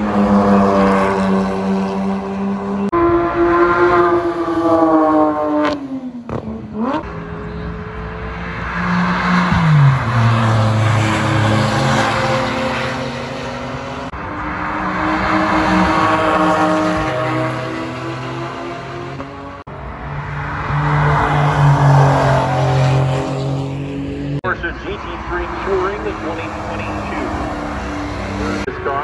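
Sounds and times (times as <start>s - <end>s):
sports car engines driving past: 0.0s - 29.0s.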